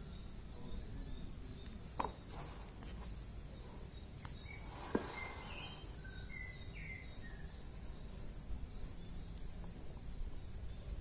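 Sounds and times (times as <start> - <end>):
high bird chirps: 3.9 - 9.4.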